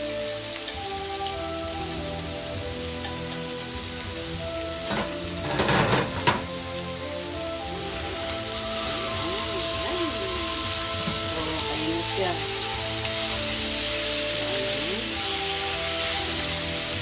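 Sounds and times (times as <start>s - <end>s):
meat sizzling in a wok: 0.0s - 17.0s
spatula scraping a wok: 4.8s - 6.5s.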